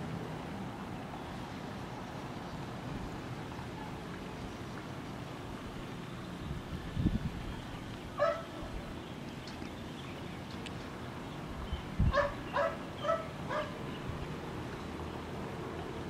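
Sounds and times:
steady outdoor hiss: 0.0s - 16.0s
dog barking: 8.2s - 8.5s, 12.1s - 13.8s.

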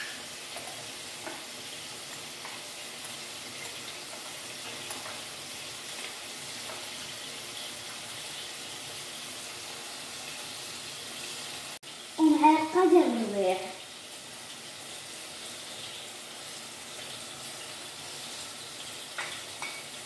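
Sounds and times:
meat and onion sizzling in oil: 0.0s - 20.0s.

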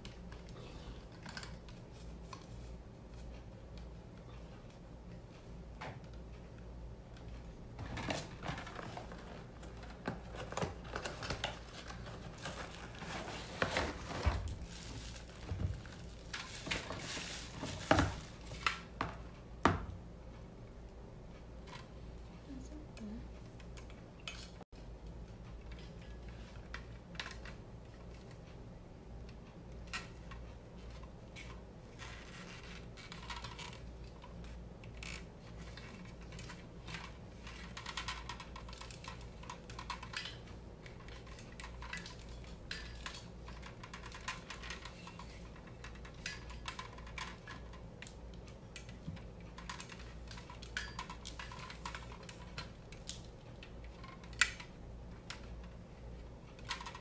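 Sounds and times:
plastic clicks and rattles: 29.3s - 57.0s.

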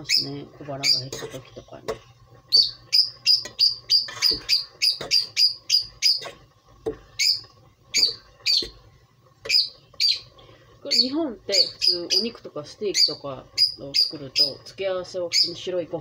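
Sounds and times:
small bird chirping: 2.5s - 6.3s, 7.2s - 8.8s, 9.5s - 10.3s, 10.9s - 14.6s.

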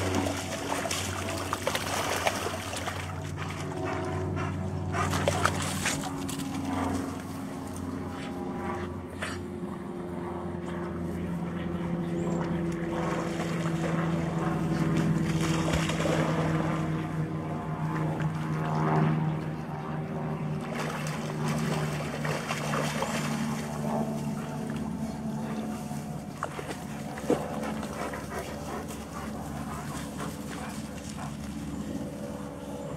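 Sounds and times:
engine droning: 0.0s - 32.9s.

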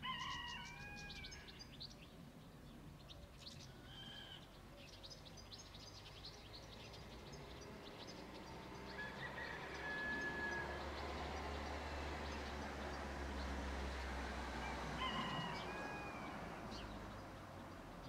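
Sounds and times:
small birds chirping: 0.0s - 14.3s, 15.0s - 18.0s.

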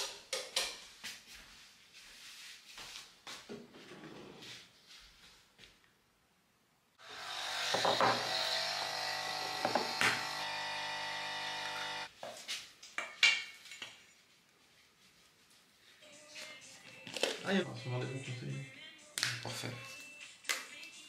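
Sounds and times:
small electric motor buzzing: 7.0s - 12.1s.

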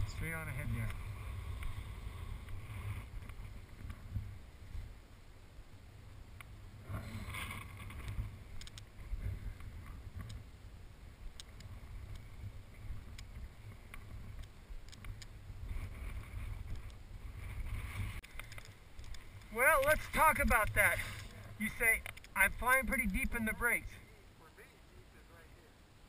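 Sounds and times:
faint clicks: 7.3s - 8.9s, 13.1s - 15.4s, 18.2s - 20.0s, 20.6s - 22.4s.

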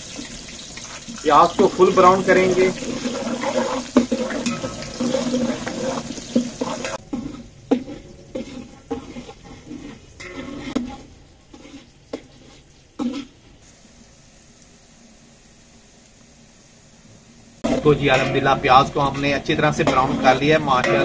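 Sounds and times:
onions sizzling in a pot: 0.0s - 21.0s
ladle knocking and scraping pot: 0.1s - 13.3s, 17.6s - 21.0s.

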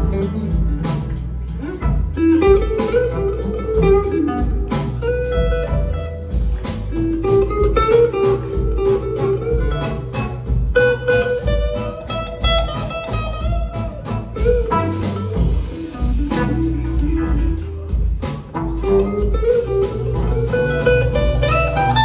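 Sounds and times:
bass guitar: 0.0s - 22.0s
electric guitar lead lines: 0.0s - 22.0s
steady drum beat: 0.0s - 22.0s.

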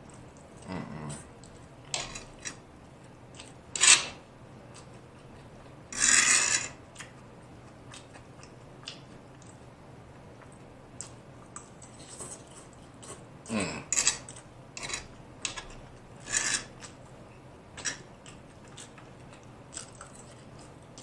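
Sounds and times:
noodles being chewed: 0.0s - 3.6s, 6.7s - 9.6s, 14.1s - 21.0s
fork scraping food tray: 5.9s - 6.8s, 16.2s - 16.9s.

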